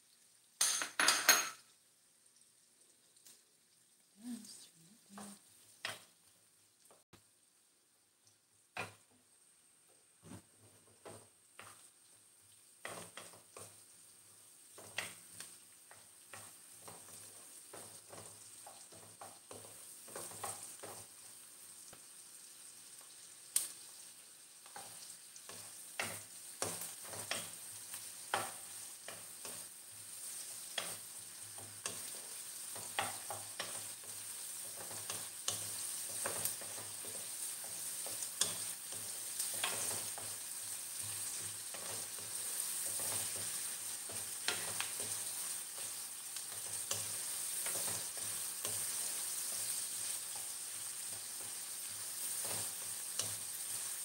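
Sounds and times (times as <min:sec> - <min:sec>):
onions sizzling in a pan: 0:00.0 - 0:54.0
wooden spoon scraping a pan: 0:24.7 - 0:54.0.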